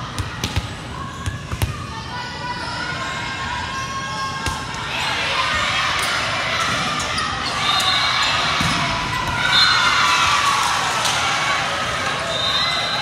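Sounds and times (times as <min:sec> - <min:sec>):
players and spectators cheering: 0:01.8 - 0:13.0.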